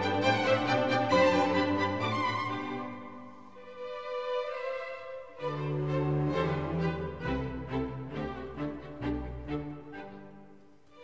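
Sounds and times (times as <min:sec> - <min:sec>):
bowed strings melody: 0:00.0 - 0:11.0.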